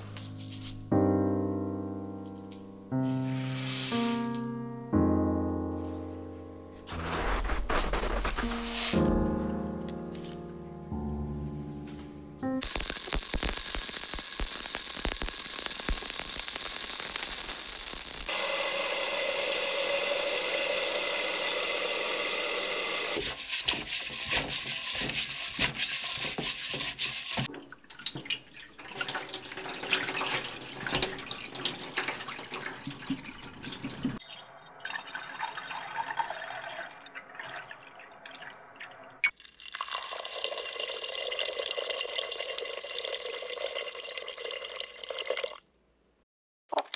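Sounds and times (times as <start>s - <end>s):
rice being rubbed and swished: 3.0s - 4.4s, 6.9s - 9.4s, 23.2s - 27.5s
water running onto rice: 12.6s - 34.2s
water splashing into a cup: 27.4s - 45.8s.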